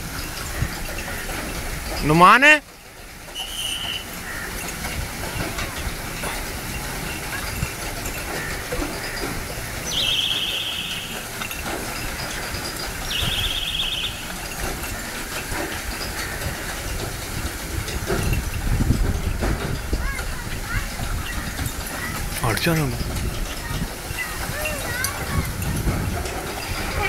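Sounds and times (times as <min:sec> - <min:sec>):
shrill trilling whistle blasts: 0:03.4 - 0:04.1, 0:09.9 - 0:11.2, 0:13.1 - 0:14.2.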